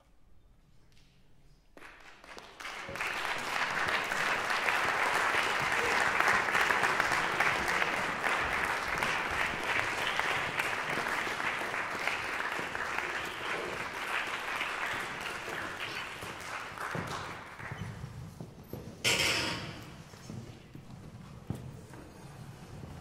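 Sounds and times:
audience applauding: 1.8 - 18.2.

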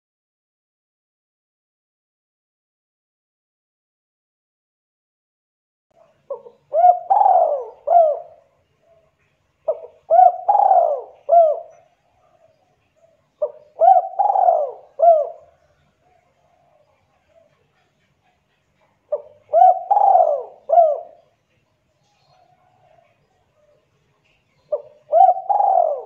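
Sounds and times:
dove cooing: 6.0 - 21.4, 22.1 - 26.0.

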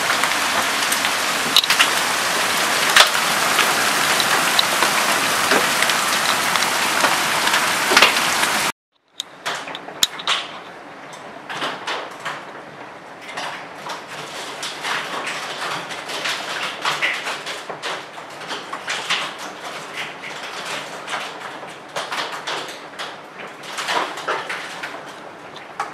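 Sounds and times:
hail and heavy rain pelting: 0.0 - 8.7, 13.4 - 25.9
hailstones and drops tapping: 0.0 - 10.5
steady downpour: 0.0 - 25.9.

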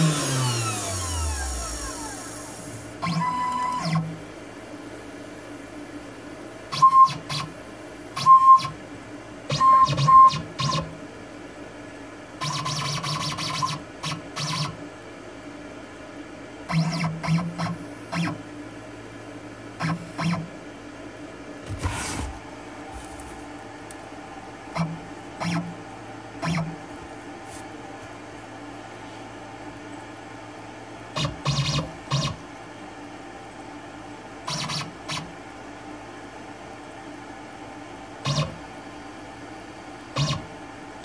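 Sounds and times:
stepper motor whine bursts: 0.0 - 4.2.

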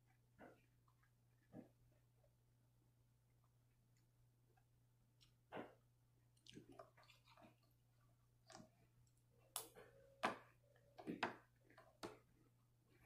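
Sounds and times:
chewing: 5.1 - 9.8.

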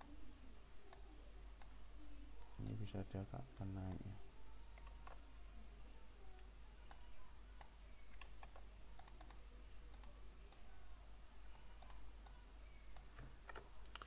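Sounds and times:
faint low hum: 0.0 - 14.0
computer mouse clicks: 6.3 - 10.6, 11.5 - 14.0.

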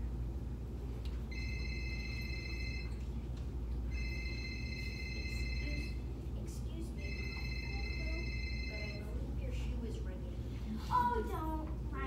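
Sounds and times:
low room hum: 0.0 - 12.0
electronic telephone ringing: 1.3 - 3.0, 3.9 - 6.0, 7.0 - 9.1.

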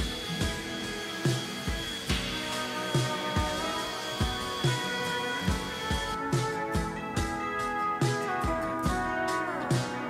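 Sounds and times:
sustained instrumental tones: 0.0 - 7.9
steady drum beat: 0.0 - 10.0.

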